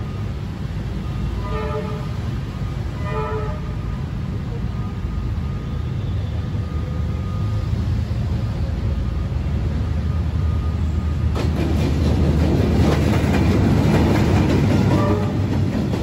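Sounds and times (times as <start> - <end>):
locomotive engine drone: 0.0 - 16.0
train wheels clattering on rails: 11.2 - 16.0.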